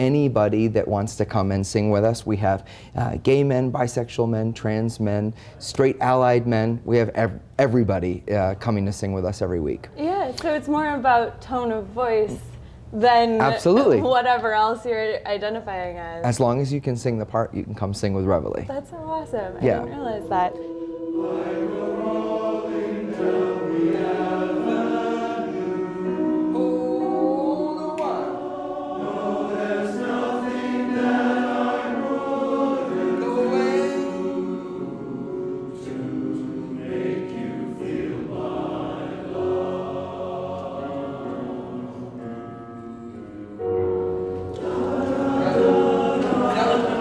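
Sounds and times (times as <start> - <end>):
men's chorus singing: 19.6 - 47.0.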